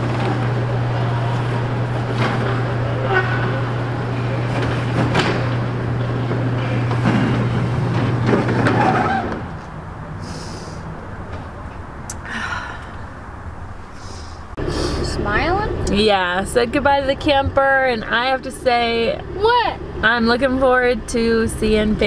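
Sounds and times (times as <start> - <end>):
garage door opener motor humming: 0.0 - 8.8.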